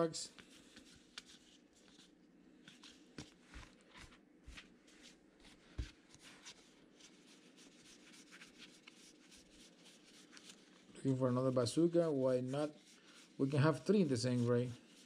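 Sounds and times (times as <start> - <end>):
cards rustling and clicking: 0.3 - 4.8, 5.6 - 11.0.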